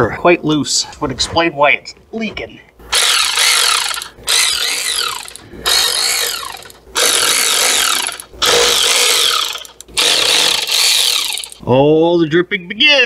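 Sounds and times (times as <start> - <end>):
cordless ratchet spinning bolts: 2.9 - 11.6.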